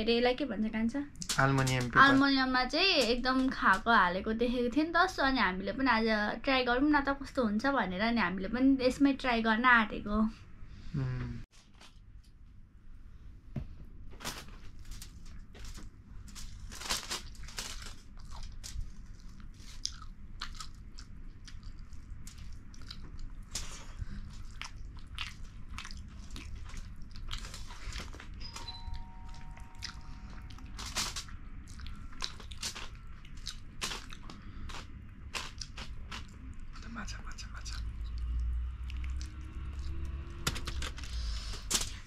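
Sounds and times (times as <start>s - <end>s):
steady low hum: 0.0s - 42.0s
chewing and crunching food: 14.7s - 42.0s.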